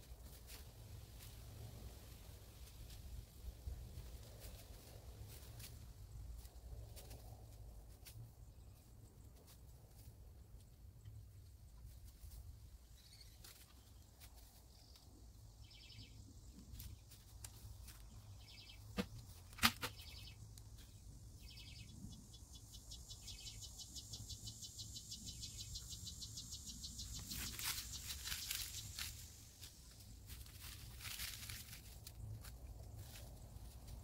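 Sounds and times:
insects trilling: 22.7 - 31.9.

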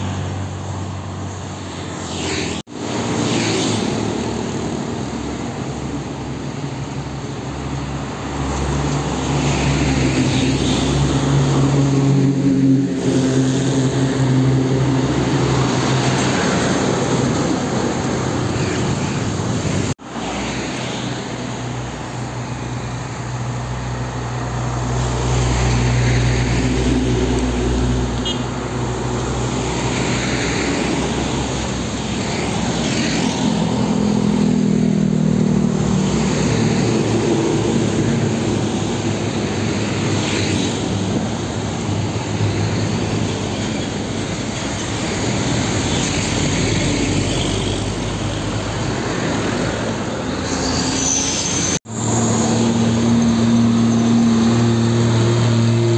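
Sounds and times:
diesel truck engines: 0.0 - 55.9
tyres on asphalt: 0.0 - 55.9.

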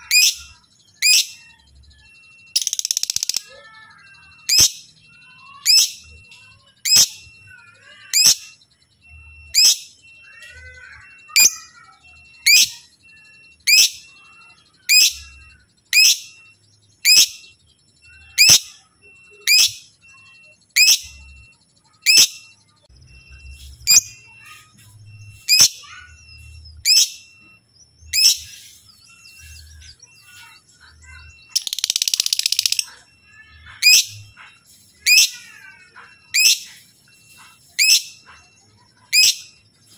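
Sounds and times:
faint bird chirping: 0.0 - 39.9
bird chirps sweeping down: 13.6 - 39.9.

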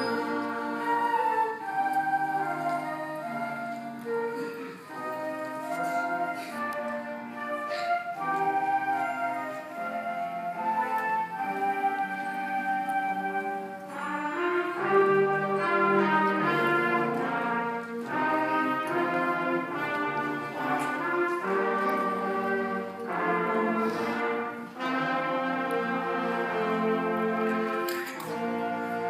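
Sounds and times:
concert band playing slow chords: 0.0 - 29.0.

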